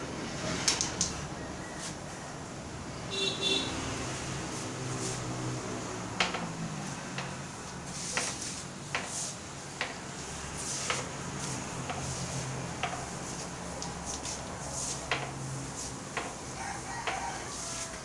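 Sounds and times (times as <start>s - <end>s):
pool balls clicking: 6.1s - 17.2s.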